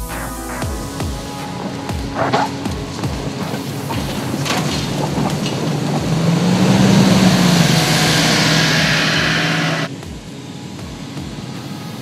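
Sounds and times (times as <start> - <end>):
engine pulling hard uphill: 2.0 - 9.9.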